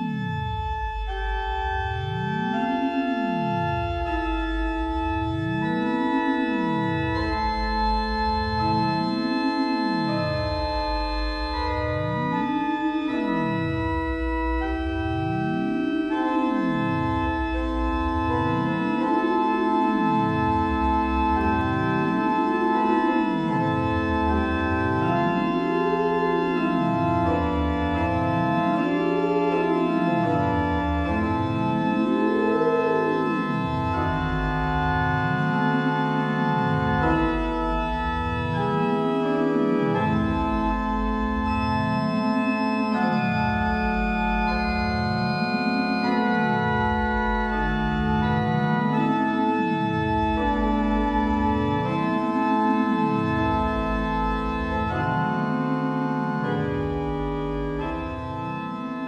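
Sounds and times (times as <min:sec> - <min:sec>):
organ chords: 0:00.0 - 0:59.0.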